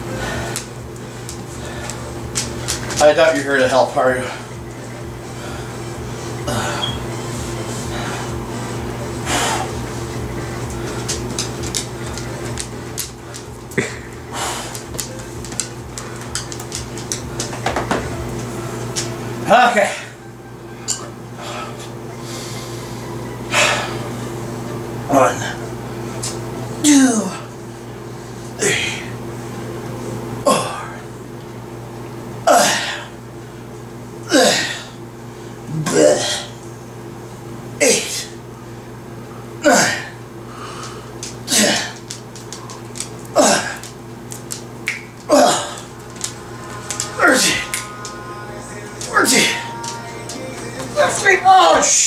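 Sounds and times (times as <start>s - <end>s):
electrical hum: 0.0s - 52.0s
dog claws clicking on wood floor: 11.1s - 13.5s, 14.7s - 17.6s, 42.0s - 45.0s
man grunting exhalations: 35.7s - 36.6s, 45.3s - 45.9s.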